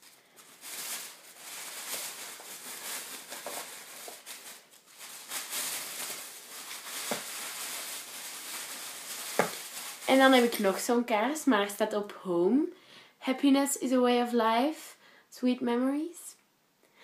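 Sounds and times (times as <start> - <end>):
rustling of purchases: 0.0 - 11.4.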